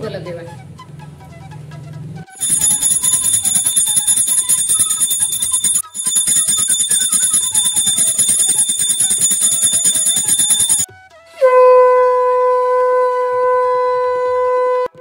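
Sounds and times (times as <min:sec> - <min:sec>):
small brass bell ringing rapidly: 0:02.4 - 0:10.9.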